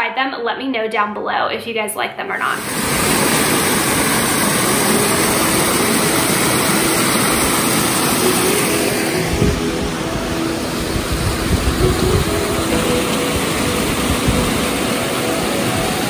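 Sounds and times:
creek water rushing over boulders: 2.6s - 16.0s.

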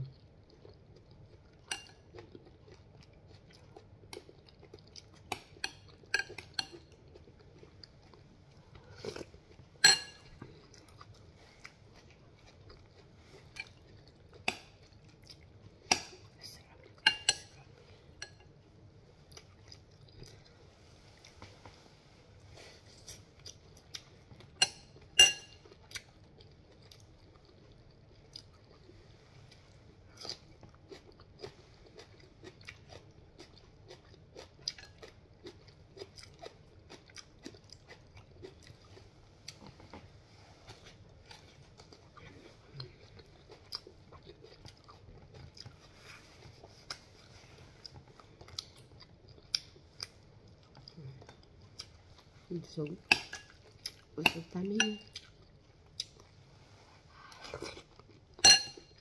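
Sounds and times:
soft chewing: 0.0s - 59.0s
metal spoon clinking on glass bowl: 9.8s - 10.2s, 24.6s - 25.6s, 58.4s - 59.0s.

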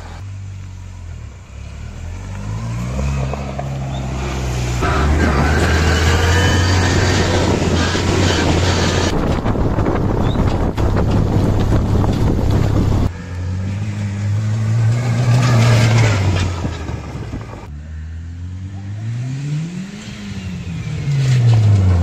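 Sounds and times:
buggy engine revving: 0.0s - 22.0s
wind buffeting microphone: 5.6s - 13.1s, 15.5s - 17.7s.

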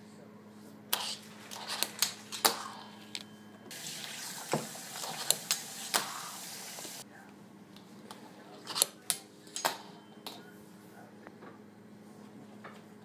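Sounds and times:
steady hiss: 3.7s - 7.0s.

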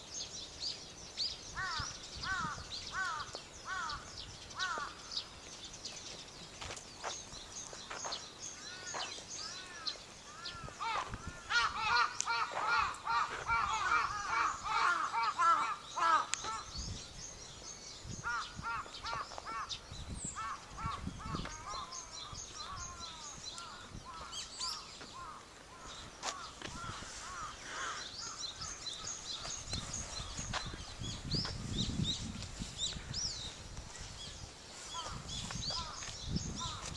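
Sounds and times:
small birds chirping: 0.0s - 36.9s
bird calling loudly: 8.6s - 16.8s.

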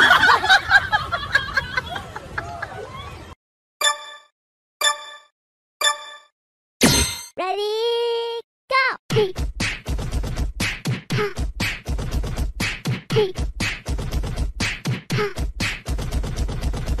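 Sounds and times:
beatbox rhythm: 9.1s - 17.0s.

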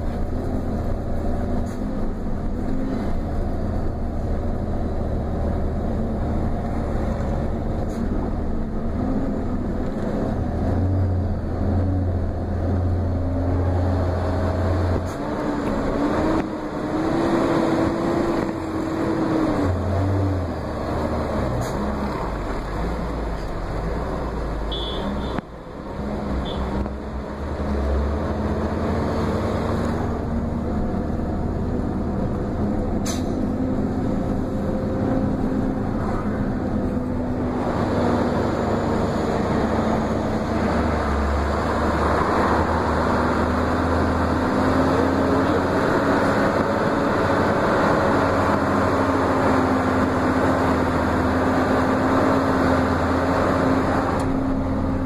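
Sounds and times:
heavy vehicle engine drone: 0.0s - 55.0s
sharp click: 33.0s - 33.4s.

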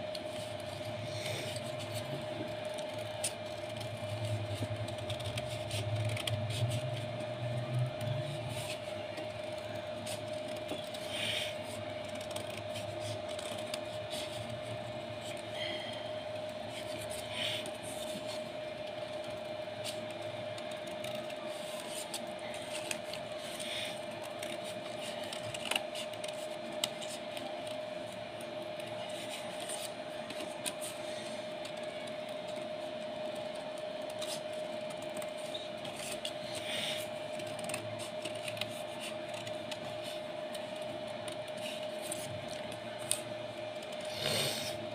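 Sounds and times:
steady hum: 0.0s - 44.9s.

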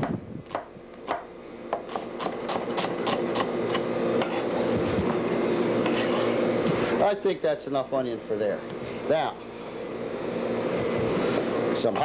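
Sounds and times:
steady hum: 0.0s - 12.0s
knife chopping on wooden board: 0.5s - 4.4s.

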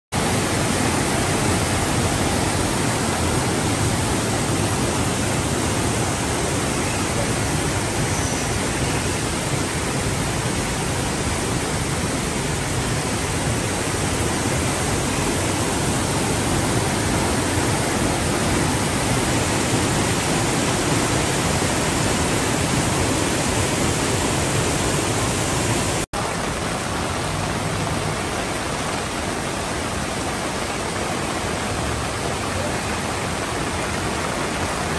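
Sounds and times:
heavy rain: 0.1s - 34.9s
floodwater rushing: 0.2s - 34.9s.

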